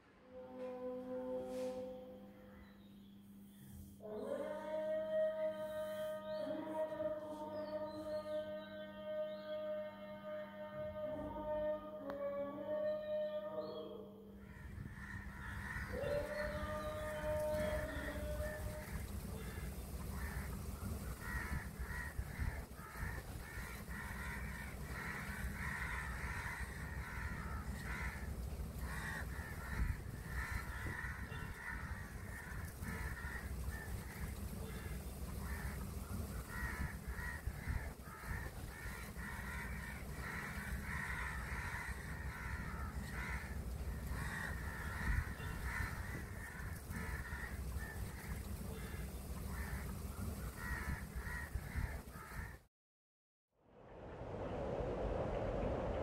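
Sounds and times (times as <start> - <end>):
crows cawing: 14.4 - 52.6
low rumble: 53.6 - 56.0.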